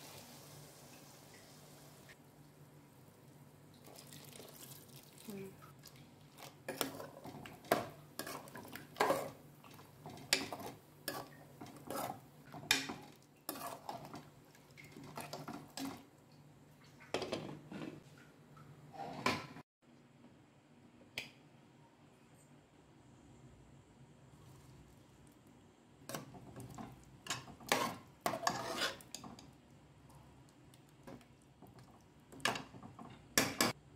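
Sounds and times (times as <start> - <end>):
ladle scraping a pot: 6.6 - 16.0, 26.1 - 29.4.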